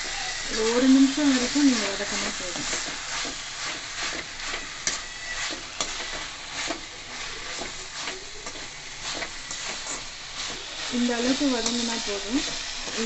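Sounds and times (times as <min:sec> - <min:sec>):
onions and tomatoes sizzling: 0:00.0 - 0:13.0
spatula scraping and clinking pan: 0:00.2 - 0:13.0.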